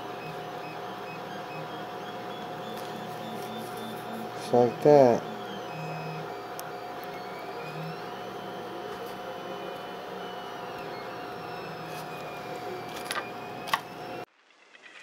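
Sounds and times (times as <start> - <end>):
steady machine hum: 0.0 - 14.3.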